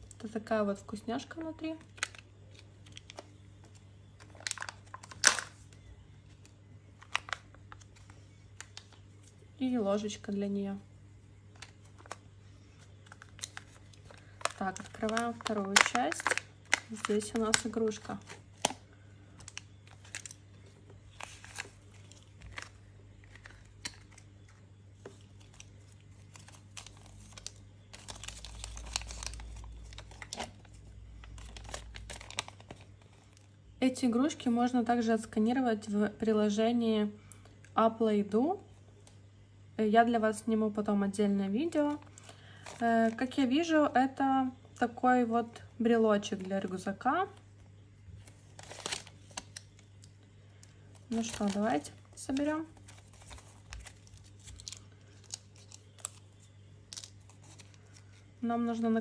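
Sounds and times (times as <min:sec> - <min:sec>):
plastic packaging crinkling: 0:01.2 - 0:09.4, 0:11.5 - 0:33.6, 0:41.7 - 0:43.5, 0:46.2 - 0:58.8.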